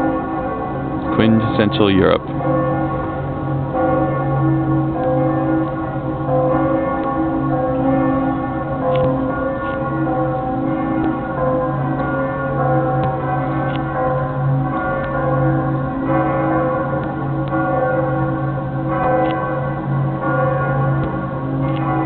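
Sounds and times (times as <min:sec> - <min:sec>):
church bells ringing: 0:00.0 - 0:22.0.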